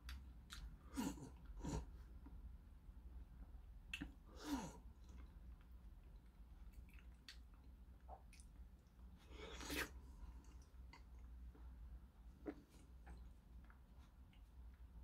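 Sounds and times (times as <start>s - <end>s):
person eating wet slurping: 9.2s - 10.7s.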